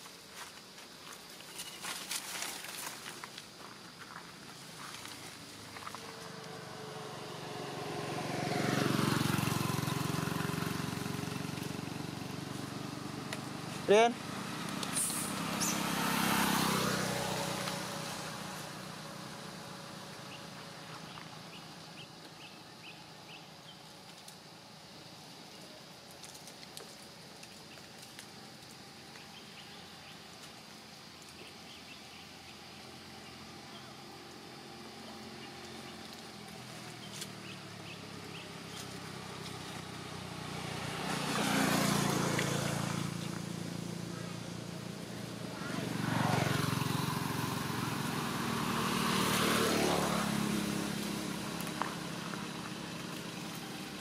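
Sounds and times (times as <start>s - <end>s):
vehicle driving past: 5.0s - 22.1s, 32.1s - 54.0s
steady hiss: 14.8s - 15.9s.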